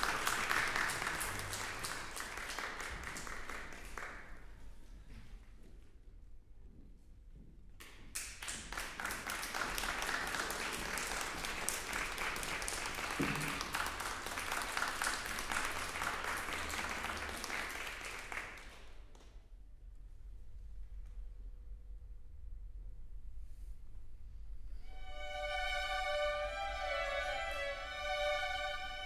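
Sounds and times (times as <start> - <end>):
audience applauding: 0.0 - 4.5, 8.2 - 19.0.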